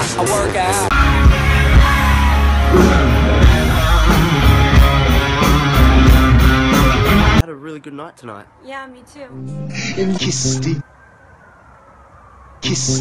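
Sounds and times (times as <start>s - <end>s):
live rock band: 0.8s - 7.4s.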